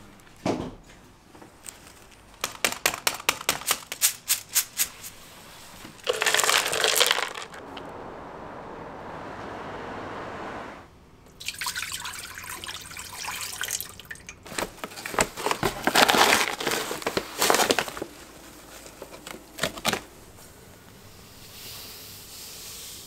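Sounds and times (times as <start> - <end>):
liquid dripping and crackling: 11.3 - 15.3
liquid pouring hiss: 11.4 - 14.2.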